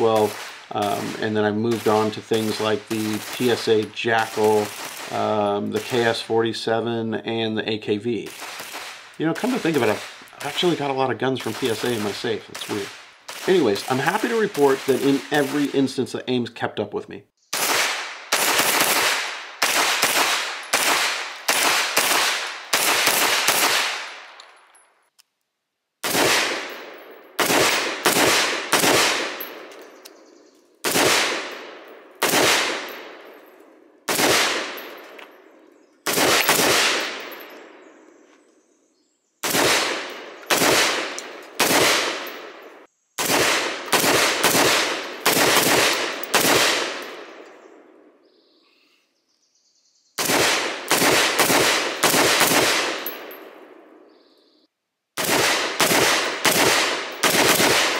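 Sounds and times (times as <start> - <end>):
rifle gunshots echoing: 0.0 - 6.3, 8.2 - 16.0, 17.5 - 24.4, 26.0 - 30.1, 30.8 - 38.0, 39.4 - 48.1, 50.2 - 54.1, 55.2 - 57.9.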